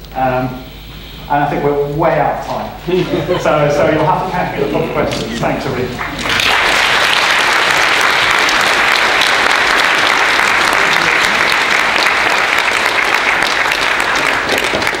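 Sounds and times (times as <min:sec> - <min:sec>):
audience applauding: 0:05.0 - 0:15.0.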